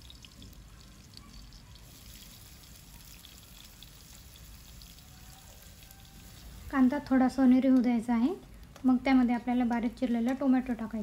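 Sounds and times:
oil sizzling: 0.0 - 8.2.

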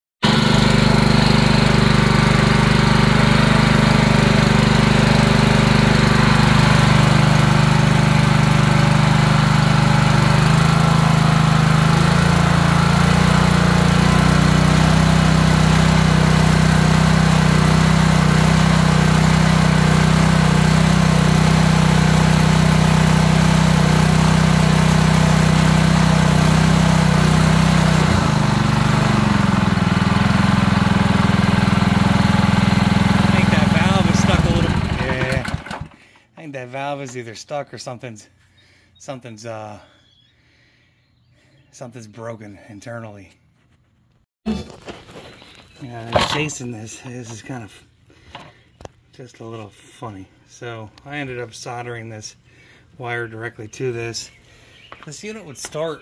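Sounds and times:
pressure washer engine running: 0.2 - 36.1.

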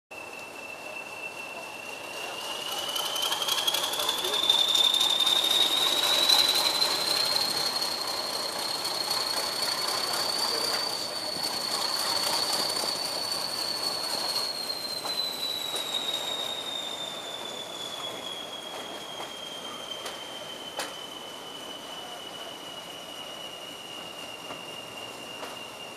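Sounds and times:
turbocharger whistle: 0.1 - 25.9.

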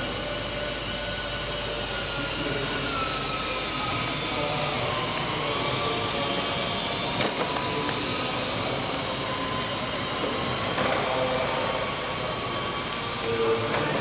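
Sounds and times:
model aircraft motors whining: 0.0 - 14.0.

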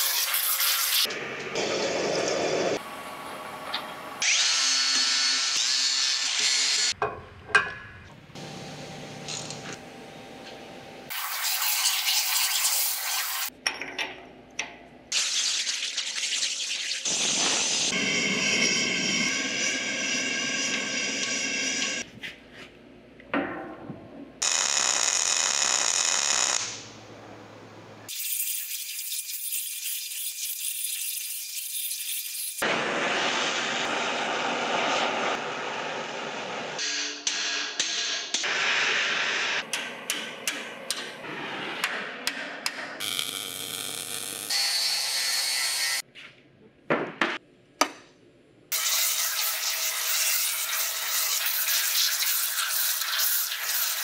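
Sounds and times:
welder arc buzzing: 8.4 - 9.8, 24.4 - 26.9, 43.0 - 46.0.

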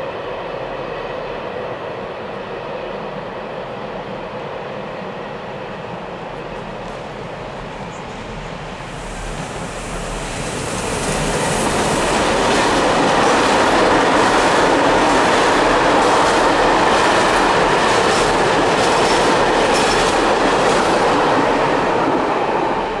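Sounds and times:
train wheels rumbling and clacking: 5.8 - 23.0.

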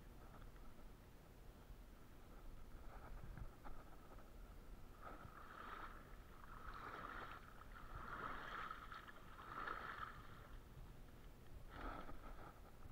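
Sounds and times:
water splashing and sloshing: 2.7 - 11.0, 11.6 - 12.9.

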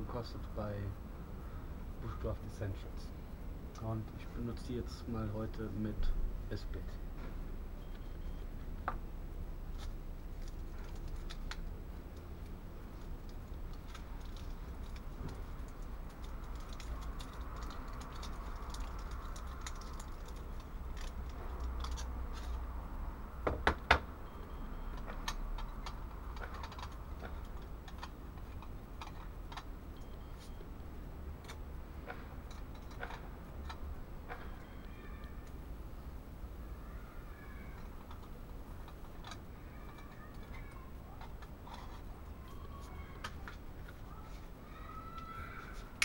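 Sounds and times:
small metal clicks and clatter: 9.8 - 22.6, 25.0 - 29.7, 31.4 - 35.6, 37.7 - 42.1.

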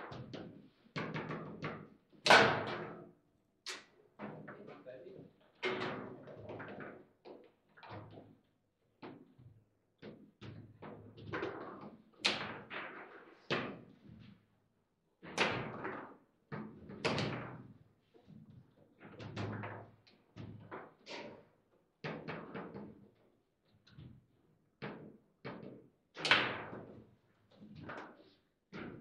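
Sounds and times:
foosball ball knocks and bangs: 0.1 - 3.0, 10.9 - 13.8, 24.9 - 27.0.

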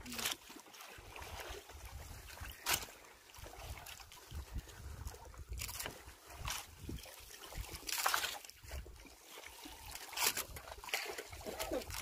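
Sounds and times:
water lapping against boat hull: 0.0 - 12.0
wind buffeting microphone: 3.6 - 7.8.

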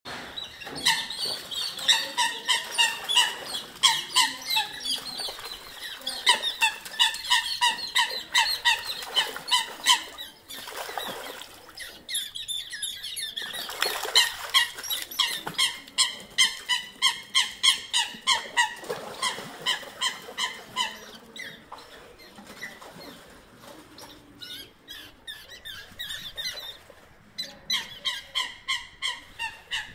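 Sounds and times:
water splashing: 0.4 - 12.2, 13.2 - 24.5.

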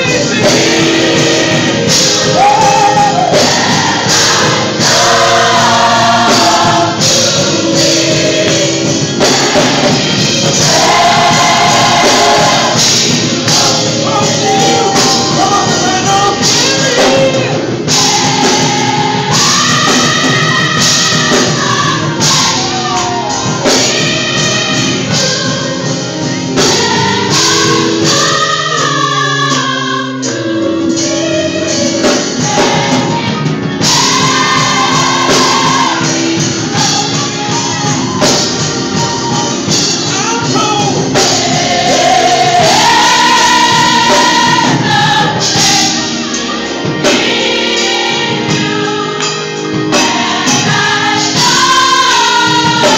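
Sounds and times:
percussive beat: 0.0 - 22.9
band accompaniment: 0.0 - 52.9
gospel choir singing: 0.0 - 52.9.

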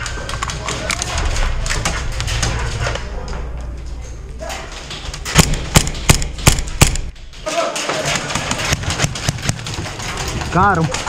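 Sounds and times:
rustling and clatter: 0.0 - 11.0
pistol shots cracking: 5.3 - 7.2.

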